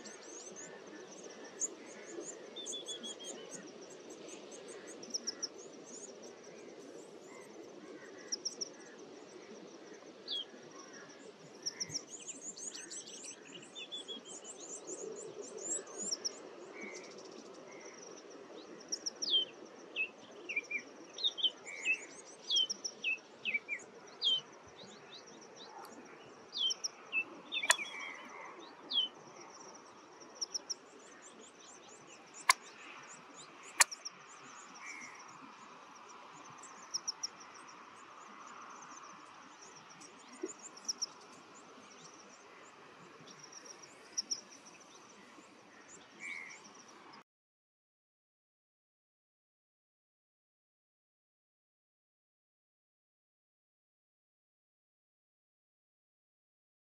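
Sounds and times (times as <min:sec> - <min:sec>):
birds chirping: 0:26.6 - 0:28.3.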